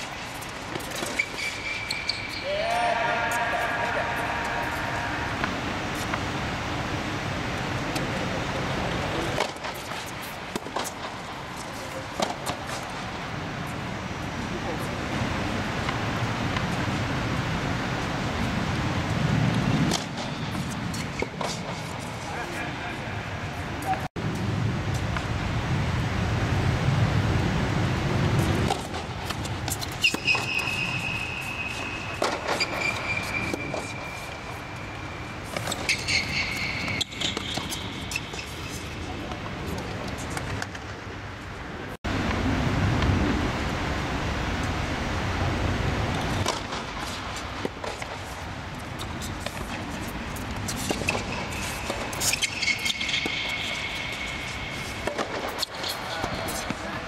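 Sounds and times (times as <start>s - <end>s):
tennis balls struck and bouncing: 9.3s - 13.0s, 28.5s - 34.8s, 35.4s - 40.9s, 49.0s - 57.0s.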